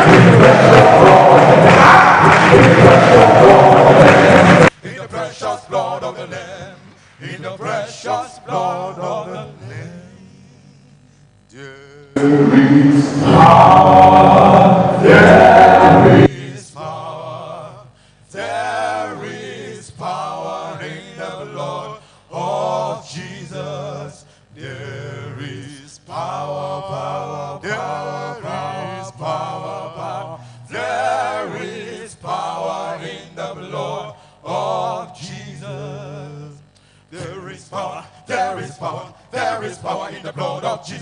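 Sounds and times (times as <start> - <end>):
male group singing in harmony: 0.0 - 10.8, 11.5 - 41.0
sustained low bass note: 12.2 - 16.3.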